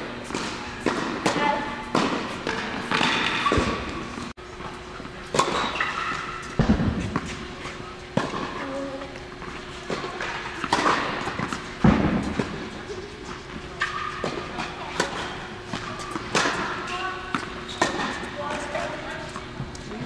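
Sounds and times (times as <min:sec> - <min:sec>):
steady hum: 0:00.0 - 0:20.0
tennis balls bouncing: 0:00.2 - 0:04.2, 0:05.2 - 0:20.0
tennis ball racket hits: 0:05.3 - 0:19.4.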